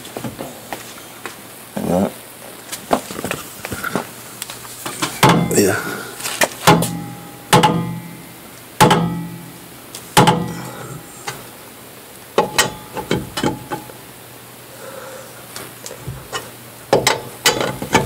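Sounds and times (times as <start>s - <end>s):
wrench clanking on steel wheel: 4.9s - 8.2s, 10.2s - 11.4s, 12.4s - 13.9s, 16.3s - 18.0s.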